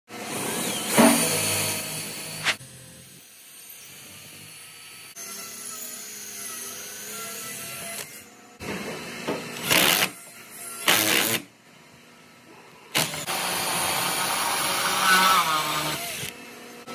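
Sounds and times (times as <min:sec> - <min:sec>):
cordless drill drilling into wood: 0:09.6 - 0:10.1, 0:13.0 - 0:16.4.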